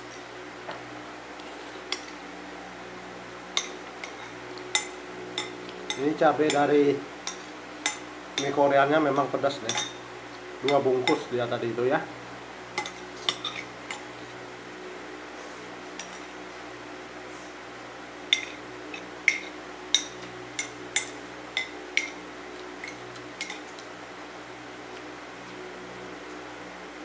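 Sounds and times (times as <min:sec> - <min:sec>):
electric fan humming: 0:00.0 - 0:27.0
cutlery clinking against bowl: 0:03.6 - 0:08.6, 0:09.6 - 0:10.0, 0:10.7 - 0:11.3, 0:12.8 - 0:14.1, 0:16.0 - 0:16.3, 0:18.3 - 0:22.2, 0:22.8 - 0:23.8.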